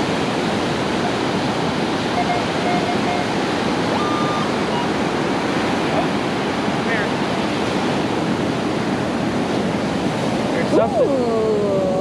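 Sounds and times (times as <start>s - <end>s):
metal detector beeps: 2.2s - 3.3s, 3.9s - 4.9s
metal detector tone: 2.2s - 3.3s.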